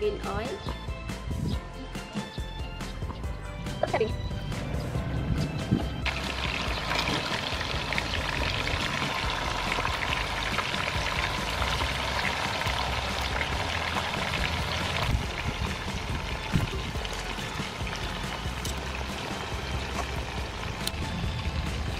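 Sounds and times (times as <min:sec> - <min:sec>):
chicken wings sizzling in oil: 0:06.0 - 0:21.9.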